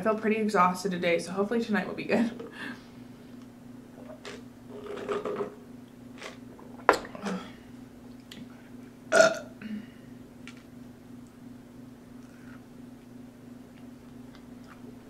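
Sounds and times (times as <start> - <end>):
woman burping: 9.1 - 9.9.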